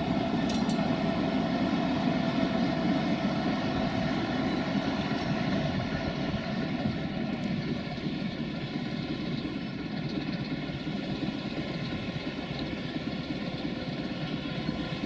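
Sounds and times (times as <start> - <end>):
electric locomotive droning: 0.0 - 15.0.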